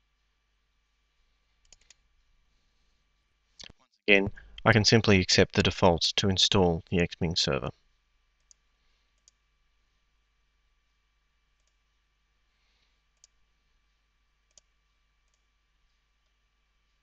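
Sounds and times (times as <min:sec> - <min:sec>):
faint computer mouse clicks: 0:01.6 - 0:02.0, 0:14.5 - 0:14.7.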